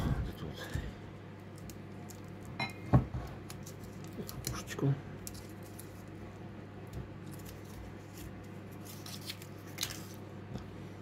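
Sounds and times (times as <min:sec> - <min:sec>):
low steady hum: 0:00.0 - 0:11.0
foil crinkling and clicking: 0:03.4 - 0:06.2, 0:07.2 - 0:10.2.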